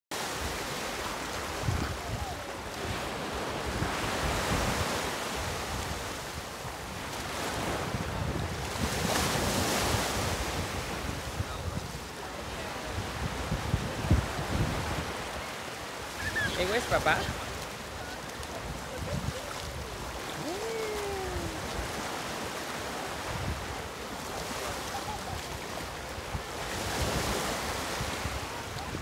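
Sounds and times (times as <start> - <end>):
waves washing on sandy shore: 0.1 - 29.0
wind buffeting microphone: 1.5 - 15.4, 16.0 - 22.4.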